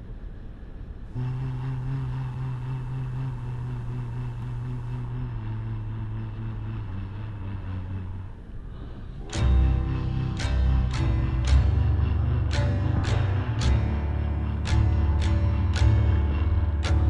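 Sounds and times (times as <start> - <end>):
vehicle engine and road drone: 0.0 - 17.0.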